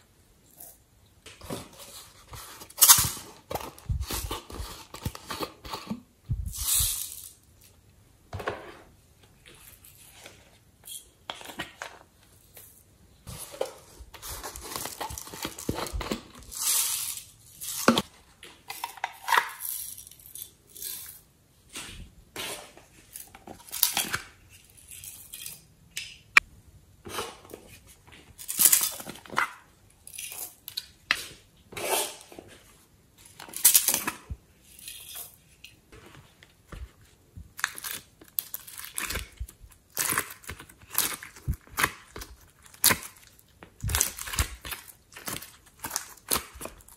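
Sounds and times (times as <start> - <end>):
crinkly rustling: 11.5 - 18.6.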